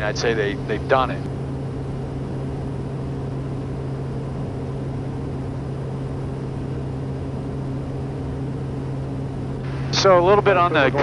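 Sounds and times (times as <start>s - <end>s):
turboprop engine hum: 0.0s - 11.0s
constant rushing noise: 9.6s - 11.0s.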